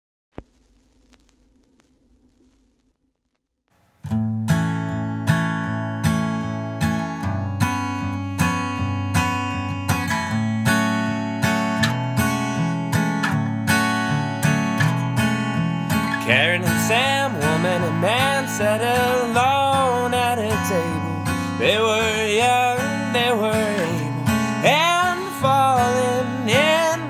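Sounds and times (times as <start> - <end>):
acoustic guitar strumming: 3.8 - 27.0
man singing: 16.1 - 27.0.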